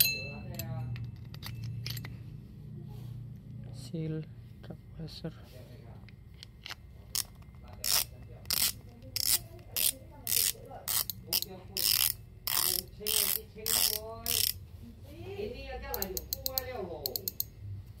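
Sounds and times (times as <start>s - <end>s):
fishing reel drag clicking: 7.8s - 14.6s.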